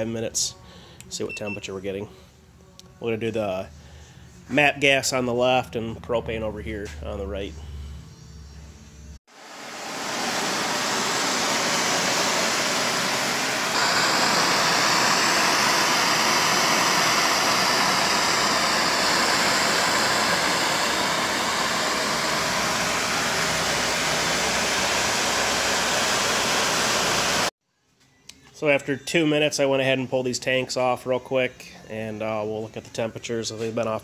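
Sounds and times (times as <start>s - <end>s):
gas torches hissing: 9.4s - 27.5s.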